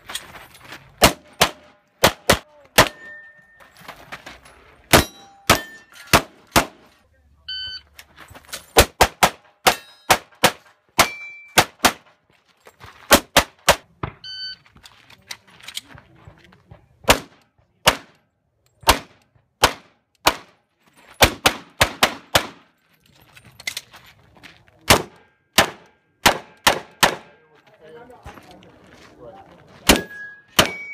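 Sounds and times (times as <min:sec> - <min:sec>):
rapid pistol shots: 0:01.0 - 0:03.0, 0:08.8 - 0:12.0, 0:18.9 - 0:20.5, 0:21.2 - 0:22.6, 0:24.9 - 0:27.4
bullets ringing on steel targets: 0:02.7 - 0:03.8, 0:04.9 - 0:06.3, 0:09.6 - 0:10.2, 0:11.0 - 0:11.7, 0:29.9 - 0:30.9.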